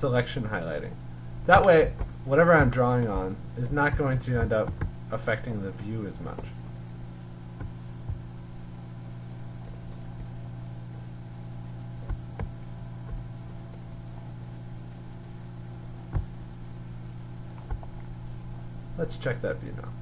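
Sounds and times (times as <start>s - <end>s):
steady low hum: 0.0s - 20.0s
keyboard and mouse clicking: 2.0s - 5.0s, 5.7s - 8.3s, 9.2s - 10.8s, 11.9s - 16.3s, 17.5s - 18.0s.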